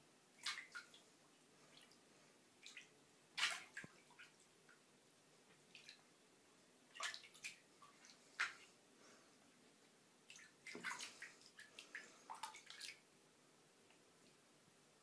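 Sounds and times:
shallow water splashing: 10.3s - 13.0s.

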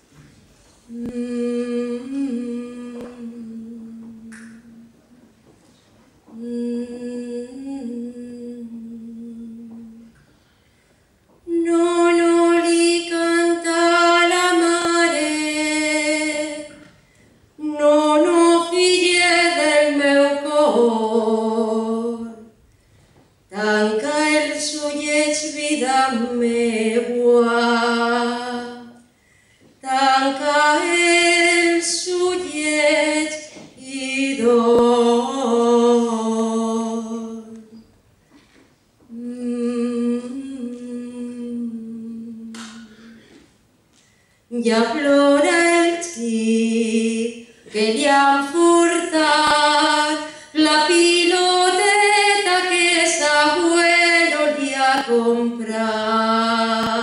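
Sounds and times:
unaccompanied voices singing folk song: 44.6s - 57.0s.

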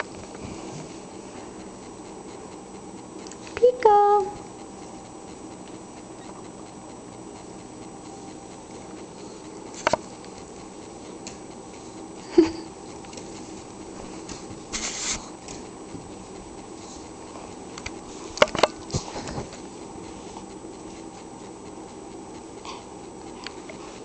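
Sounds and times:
paws and claws clicking: 0.0s - 24.0s.

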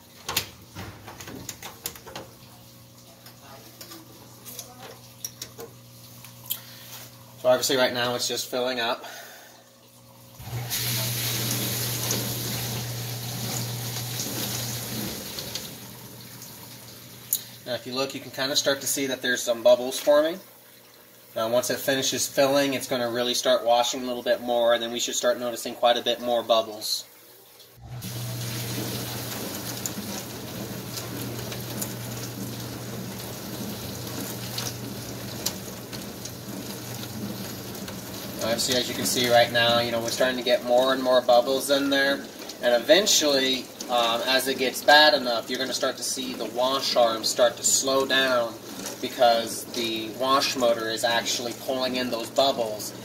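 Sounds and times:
dishwasher pump motor hum: 0.0s - 26.8s, 27.6s - 53.0s
water spraying in dishwasher: 10.4s - 20.4s, 27.7s - 53.0s.

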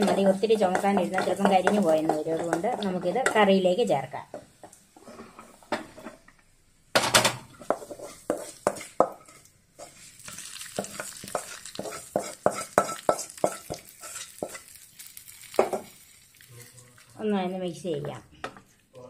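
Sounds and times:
spatula scraping pan: 0.0s - 6.2s, 7.4s - 16.0s
hot oil sizzling: 0.0s - 18.0s.

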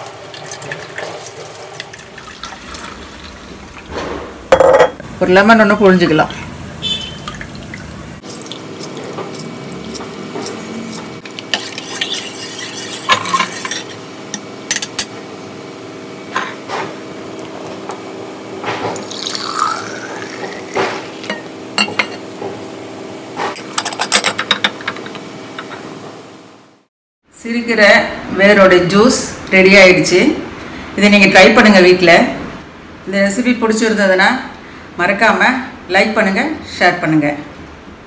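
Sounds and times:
juice pouring into glass mug: 0.2s - 3.9s, 19.0s - 21.3s
glass clinks and knocks: 4.5s - 5.0s.

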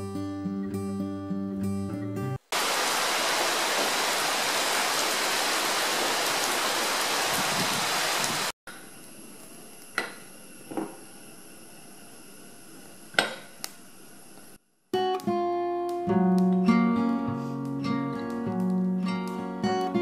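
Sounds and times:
heavy rain pouring: 2.5s - 8.6s.

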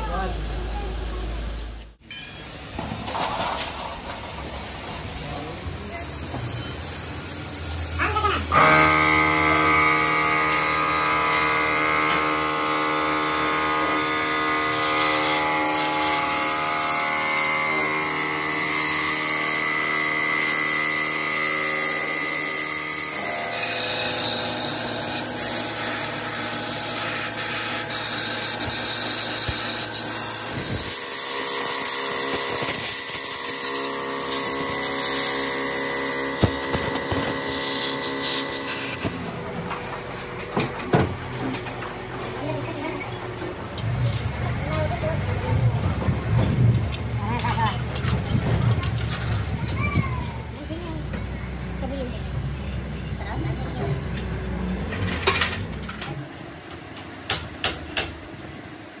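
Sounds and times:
power tool motor humming: 6.2s - 39.4s.

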